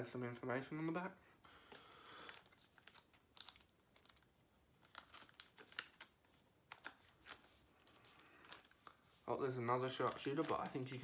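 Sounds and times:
sharp plastic crackle: 0:01.7 - 0:06.1, 0:09.8 - 0:11.0
plastic sleeve crinkling and rustling: 0:01.7 - 0:11.0.

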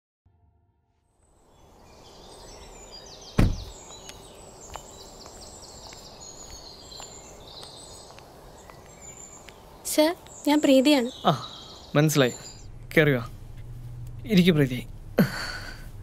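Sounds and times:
birds chirping: 0:01.2 - 0:16.0
car door shutting: 0:03.3 - 0:03.8.

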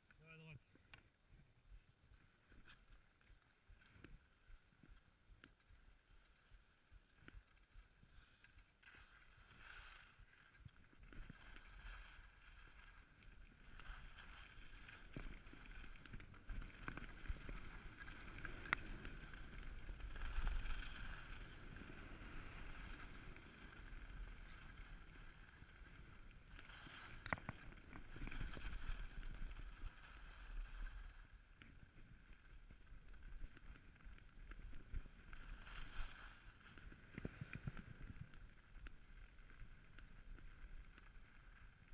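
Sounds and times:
skis scraping over snow: 0:02.1 - 0:41.9
wind rumbling on microphone: 0:10.0 - 0:41.9.

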